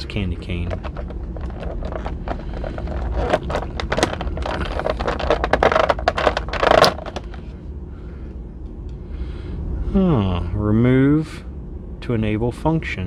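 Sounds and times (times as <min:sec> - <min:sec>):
plastic tray crackling: 0:00.4 - 0:07.5.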